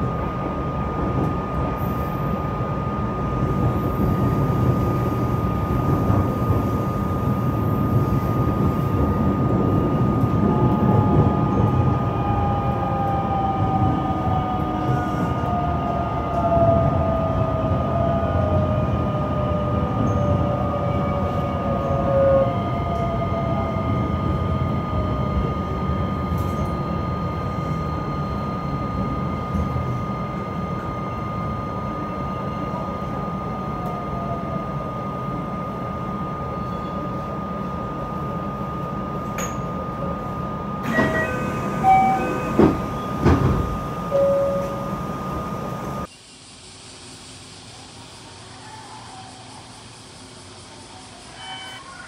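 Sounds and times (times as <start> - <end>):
train rumble: 0.0 - 46.1
electric train inverter whine: 0.0 - 52.0
steady high tone: 19.7 - 46.1, 50.6 - 52.0
short beeps: 40.9 - 43.4, 44.1 - 45.0, 51.3 - 51.9.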